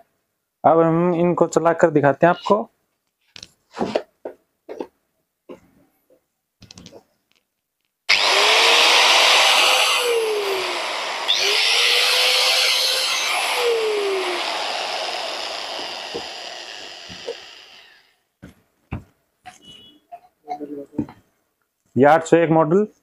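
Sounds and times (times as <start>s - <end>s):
angle grinder whining: 8.1s - 18.2s.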